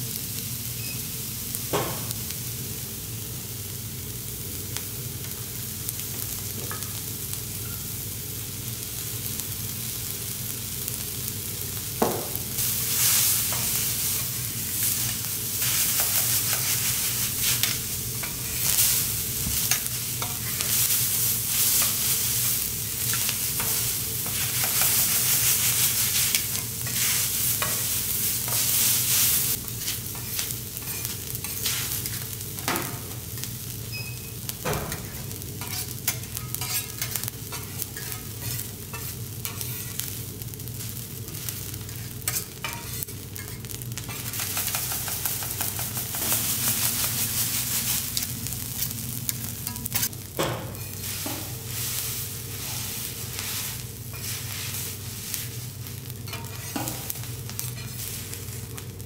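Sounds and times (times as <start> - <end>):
food sizzling on griddle: 0.0 - 59.0
metal spatulas scraping and clicking: 35.0 - 40.1, 41.3 - 46.5, 56.3 - 58.0.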